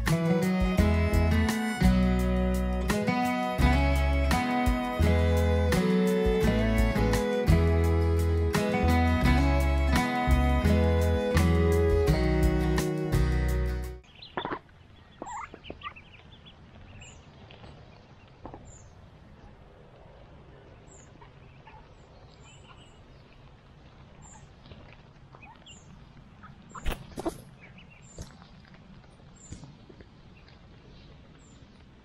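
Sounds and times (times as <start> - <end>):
music: 0.0 - 14.0
ducklings peeping: 14.0 - 18.8, 20.9 - 28.6
ducks calling softly: 14.0 - 32.0.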